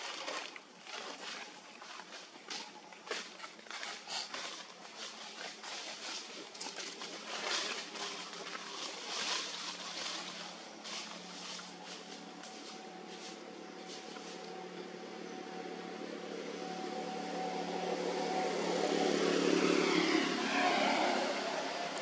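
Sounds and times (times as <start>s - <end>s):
steady engine hum: 0.0s - 22.0s
motor vehicle passing by: 3.5s - 22.0s.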